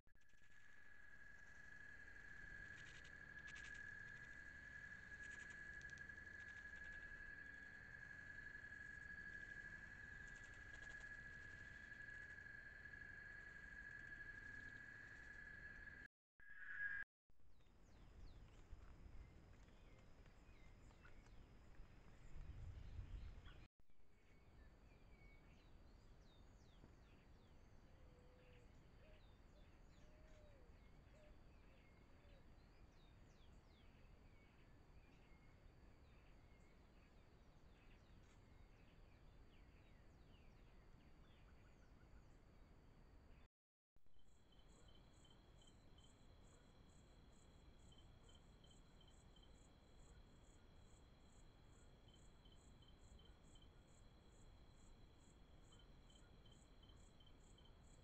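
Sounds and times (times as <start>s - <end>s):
bird chirps: 0.2s - 17.0s
night insects trilling: 0.2s - 17.0s, 44.5s - 58.0s.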